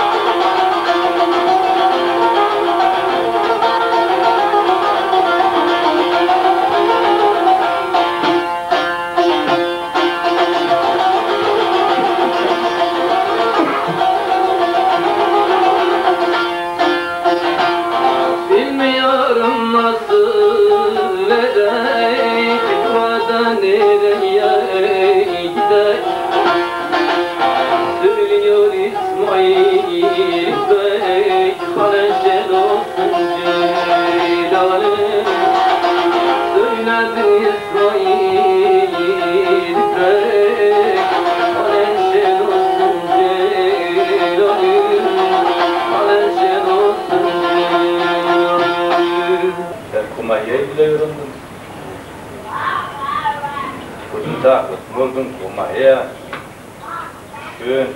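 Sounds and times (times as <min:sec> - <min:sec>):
long-necked lute strummed and plucked: 0:00.0 - 0:51.6.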